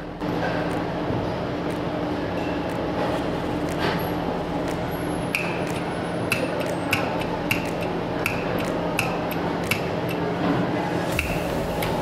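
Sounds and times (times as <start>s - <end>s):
steady low hum: 0.0s - 12.0s
contactor metallic clicks: 4.6s - 10.3s.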